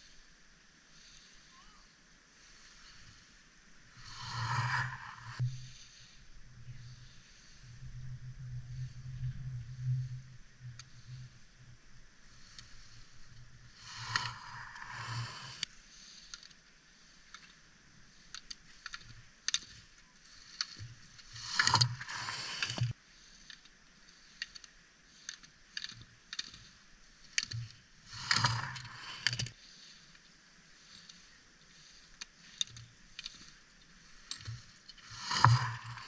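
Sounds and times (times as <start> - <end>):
skis carving on hard snow: 2.4 - 6.2, 12.3 - 17.5, 18.1 - 24.4, 26.0 - 30.1, 30.7 - 36.0.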